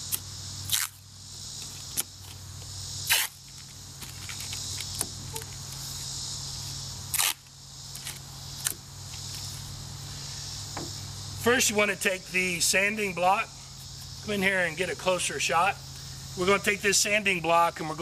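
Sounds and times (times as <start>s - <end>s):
insect chirring: 0.0s - 18.0s
masking tape ripping: 0.1s - 1.0s, 3.1s - 3.4s, 7.1s - 8.8s.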